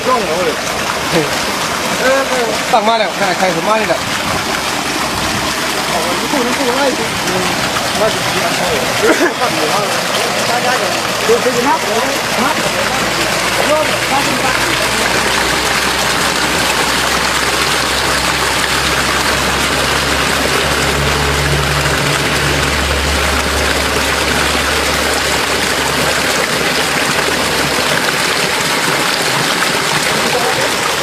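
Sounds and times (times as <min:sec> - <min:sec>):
spring water gushing: 0:00.0 - 0:31.0
low rumble: 0:13.0 - 0:28.0.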